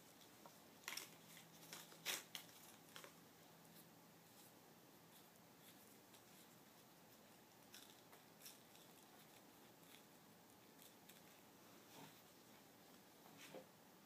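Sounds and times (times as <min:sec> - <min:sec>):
paper wrappers rustling: 0:00.1 - 0:03.2.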